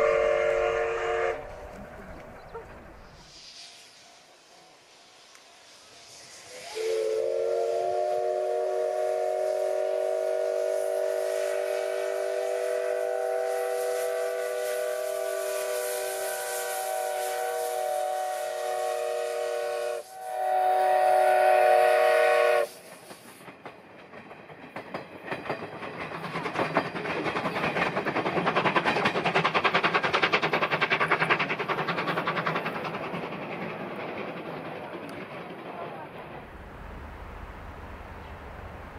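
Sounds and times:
steam whistle blasts: 0.0s - 1.7s, 5.8s - 22.8s
train on rails: 0.0s - 38.9s.

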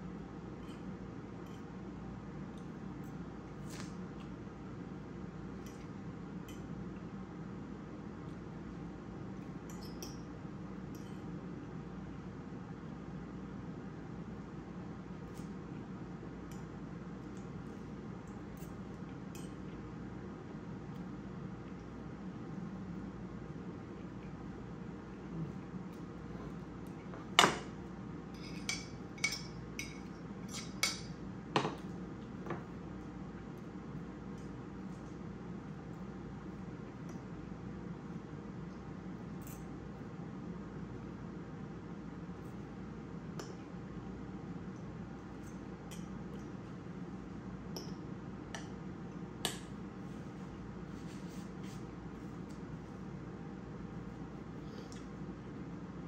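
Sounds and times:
low room hum: 0.0s - 56.0s
fork clinking on ceramic dishes: 28.4s - 31.1s.

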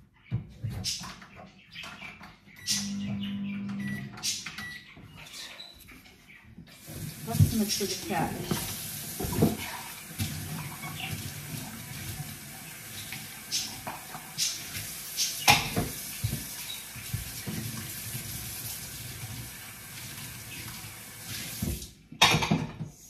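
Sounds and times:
tap running into sink: 6.8s - 12.2s, 13.0s - 18.8s.

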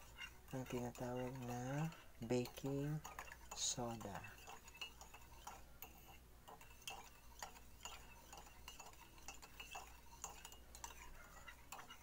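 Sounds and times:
spoon clinking in a ceramic mug: 6.5s - 12.0s.

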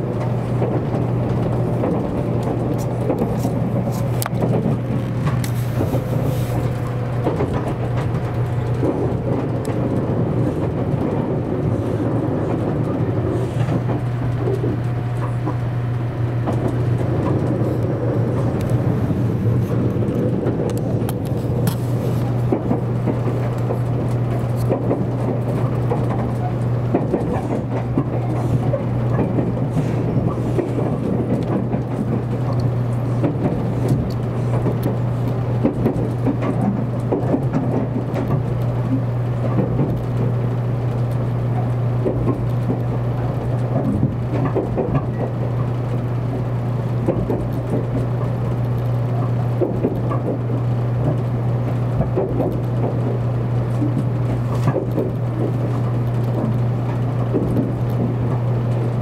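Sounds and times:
low hum: 0.0s - 59.0s
train wheels rumbling on rails: 0.0s - 59.0s.

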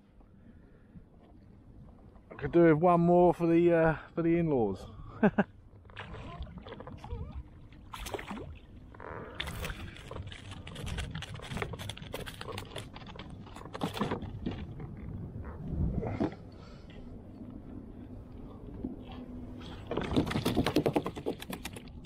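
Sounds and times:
water lapping against hull: 4.8s - 22.0s
fishing gear knocks and clicks: 9.3s - 15.0s
wind rumble on microphone: 9.4s - 20.8s.

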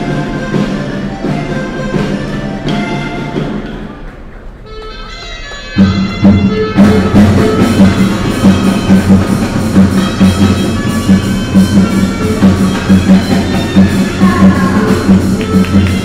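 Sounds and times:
upbeat music with driving drums: 5.8s - 16.0s.

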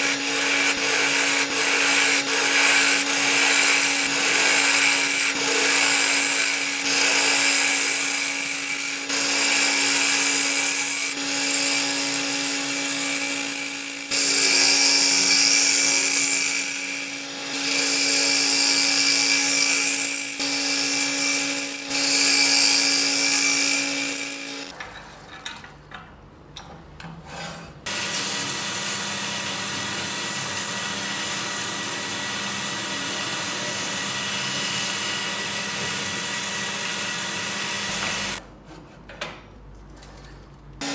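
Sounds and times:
turning tool cutting wood: 0.0s - 24.7s, 27.9s - 38.4s.

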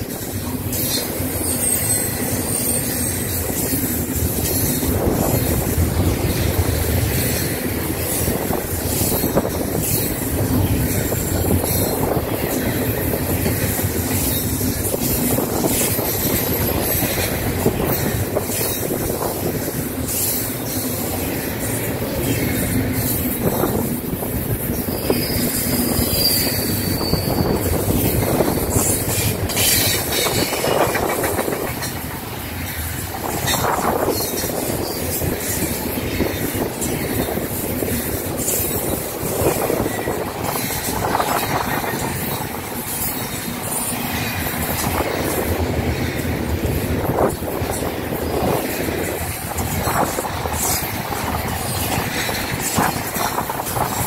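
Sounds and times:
train wheels rumbling on rail: 0.0s - 54.0s
high wheel squeal: 0.7s - 5.5s, 24.7s - 31.1s.

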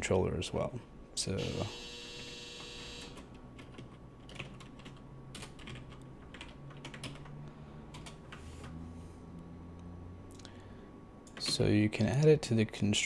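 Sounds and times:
computer keyboard typing: 3.6s - 8.4s.

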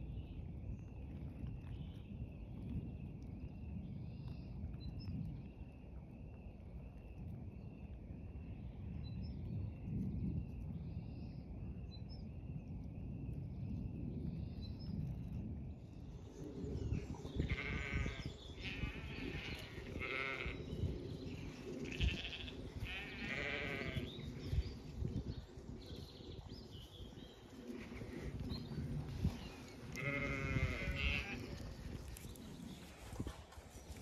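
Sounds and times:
sheep bleating: 17.4s - 20.6s, 21.8s - 24.1s, 29.9s - 31.6s.

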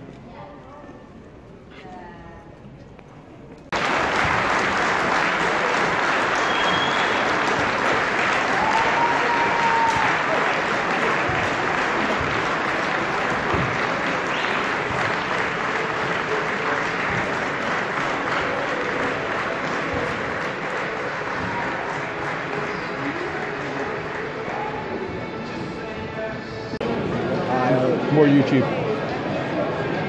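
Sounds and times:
crowd applauding: 3.7s - 25.1s.

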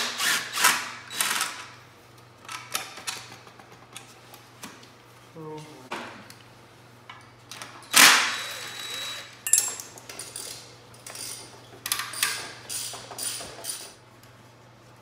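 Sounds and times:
tools clattering on concrete: 9.4s - 13.9s.

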